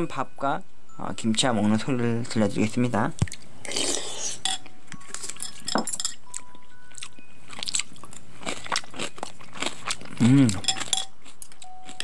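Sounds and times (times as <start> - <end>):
spoon clinking against bowl: 4.4 - 6.5, 10.6 - 12.0
crunchy chewing: 6.3 - 12.0.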